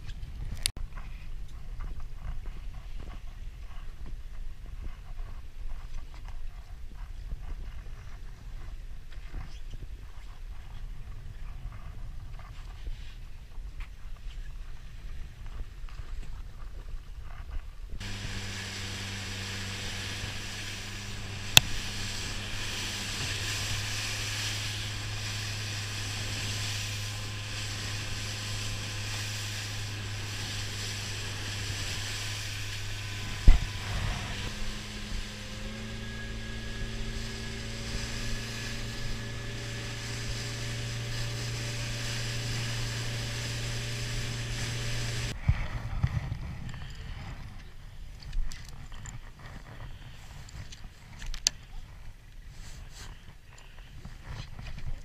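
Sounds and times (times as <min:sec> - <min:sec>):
boat engine humming: 0:18.0 - 0:45.4
wind and sea hiss: 0:18.0 - 0:46.0.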